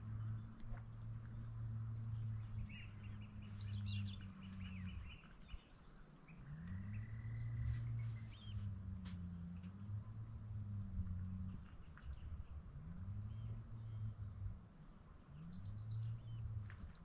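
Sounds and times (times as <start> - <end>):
low hum: 0.0 - 17.0
birds chirping and calling: 2.0 - 8.7.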